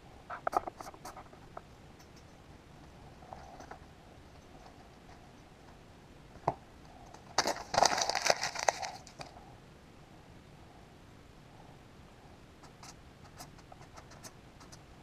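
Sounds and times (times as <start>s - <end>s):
paper crumpling: 7.3s - 9.3s.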